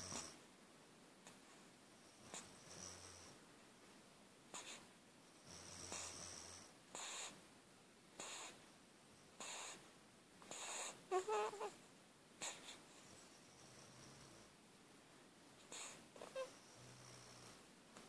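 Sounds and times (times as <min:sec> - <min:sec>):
baby snuffly snoring breaths: 0:00.0 - 0:00.4, 0:04.5 - 0:04.9, 0:05.5 - 0:07.4, 0:08.2 - 0:08.6, 0:09.4 - 0:11.7, 0:12.4 - 0:13.0, 0:15.7 - 0:17.7
baby squeaky whimper: 0:11.1 - 0:11.8.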